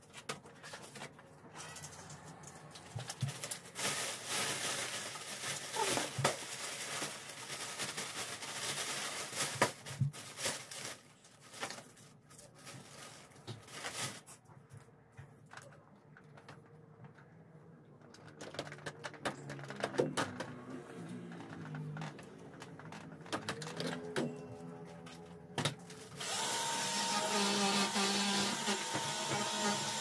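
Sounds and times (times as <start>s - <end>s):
plastic bag rustling: 2.8s - 14.4s, 18.1s - 26.6s.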